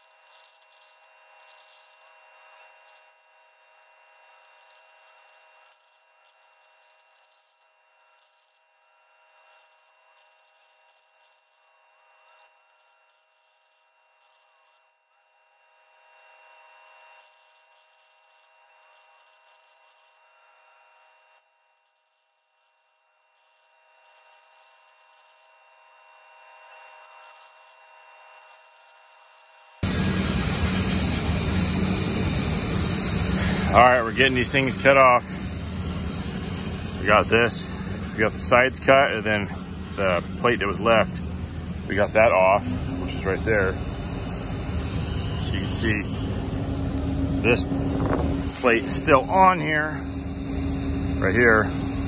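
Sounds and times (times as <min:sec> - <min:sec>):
arc cutting crackling hiss: 0:00.0 - 0:08.6, 0:09.3 - 0:14.8, 0:17.0 - 0:20.2, 0:21.8 - 0:25.5, 0:26.9 - 0:27.8, 0:28.4 - 0:52.0
steady tones: 0:29.8 - 0:52.0.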